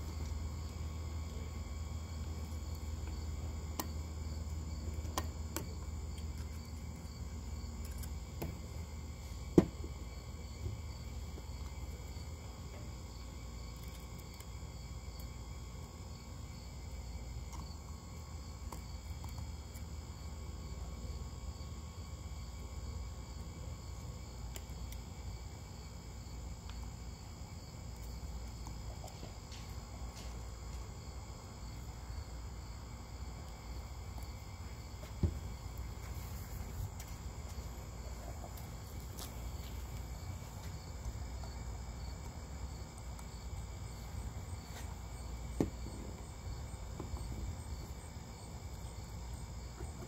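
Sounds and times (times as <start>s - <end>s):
crickets chirping: 0.0s - 50.0s.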